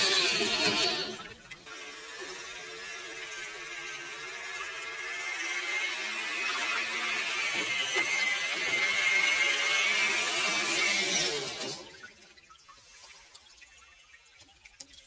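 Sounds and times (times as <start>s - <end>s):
electric motor whine: 0.0s - 11.8s.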